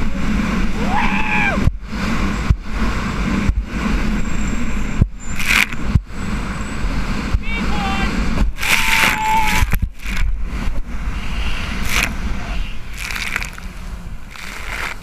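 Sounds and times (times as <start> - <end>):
jet ski engine: 0.0 - 15.0
wind rushing: 0.0 - 15.0
water spray splashing: 5.4 - 5.8, 8.6 - 10.4, 11.5 - 15.0.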